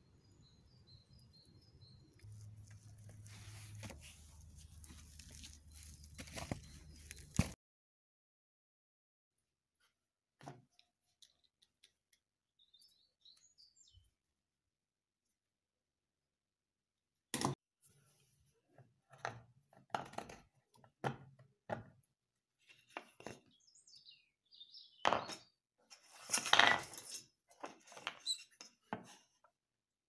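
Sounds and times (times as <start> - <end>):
scraping and rustling: 2.2 - 7.6.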